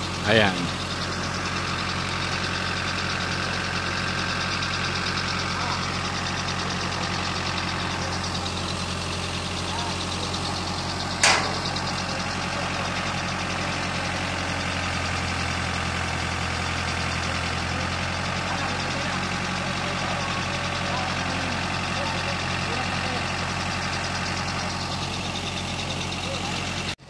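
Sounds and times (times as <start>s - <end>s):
truck engine idling: 0.0s - 27.0s
sharp high click: 11.2s - 11.6s.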